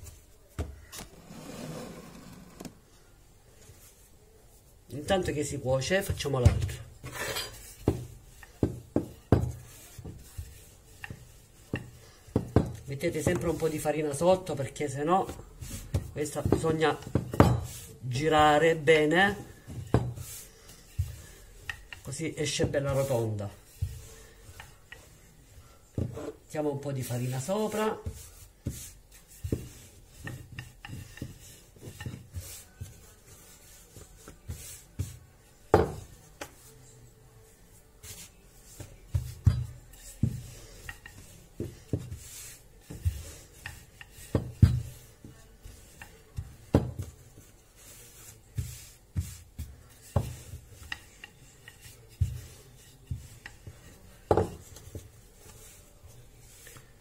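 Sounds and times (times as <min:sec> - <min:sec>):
rolling pin rubbing dough: 0:00.0 - 0:02.8, 0:03.5 - 0:57.0
rolling pin knocking on board: 0:46.0 - 0:47.1, 0:54.3 - 0:55.0.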